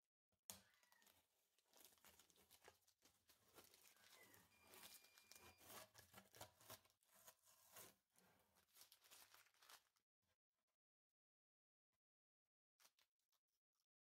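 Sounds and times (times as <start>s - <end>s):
masking tape crackling and tearing: 0.5s - 8.0s, 8.6s - 9.9s.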